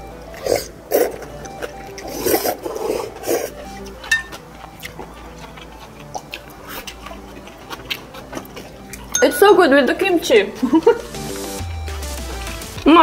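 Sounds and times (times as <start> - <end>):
slurping and chewing: 0.2 - 9.2.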